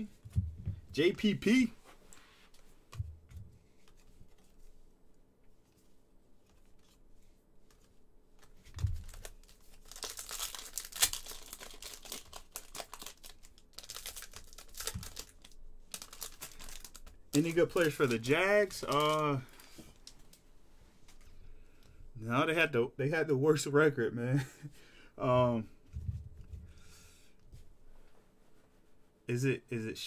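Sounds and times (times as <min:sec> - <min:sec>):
foil wrapper tearing and crinkling: 0:08.8 - 0:20.1.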